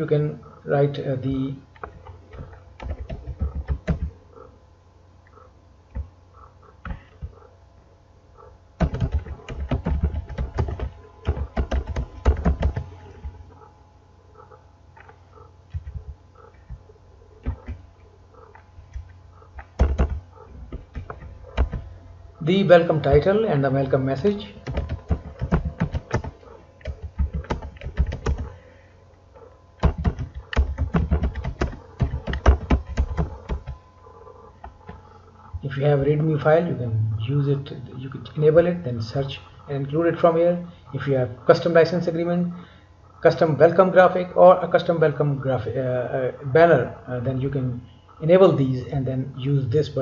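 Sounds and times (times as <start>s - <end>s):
keyboard typing: 1.8s - 4.5s, 8.8s - 13.4s, 15.0s - 16.8s, 17.4s - 17.8s, 18.4s - 21.9s, 24.2s - 28.6s, 29.8s - 33.8s.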